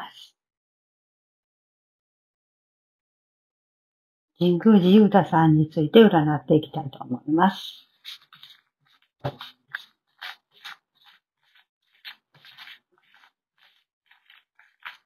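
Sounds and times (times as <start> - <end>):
cards sliding on cloth: 8.0 - 15.0.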